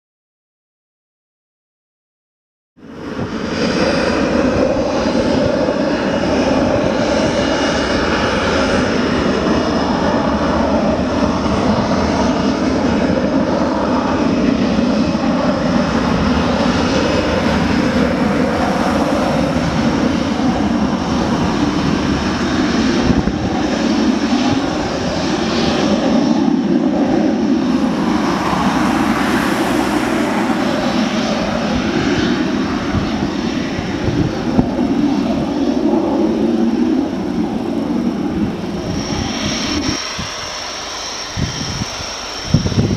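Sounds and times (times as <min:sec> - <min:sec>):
high turbine whine: 0:02.8 - 0:42.9
jet engine roar: 0:02.8 - 0:42.9.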